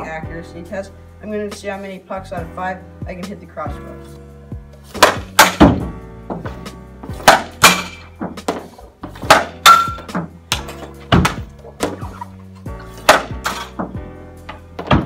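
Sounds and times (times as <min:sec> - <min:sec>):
background music: 0:00.0 - 0:15.0
puck hitting net frame: 0:04.9 - 0:12.3, 0:12.9 - 0:15.0
stick hitting puck: 0:04.9 - 0:12.3, 0:13.0 - 0:15.0.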